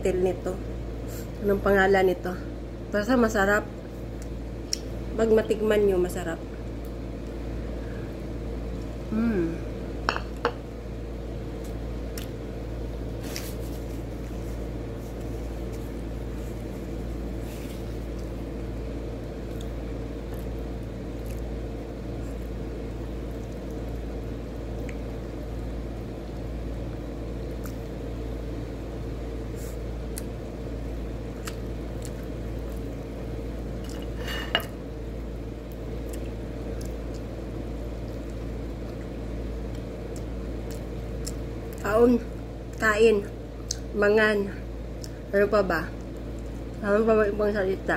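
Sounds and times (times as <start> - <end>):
steady background hum: 0.0 - 47.9
wet chewing and mouth noises: 19.4 - 25.3, 31.3 - 34.2, 35.6 - 41.8.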